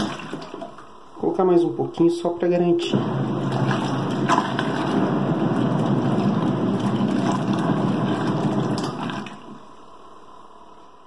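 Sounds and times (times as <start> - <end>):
washing machine motor running: 0.0 - 0.8, 2.8 - 9.8
water churning in tub: 0.0 - 0.8, 3.0 - 9.7.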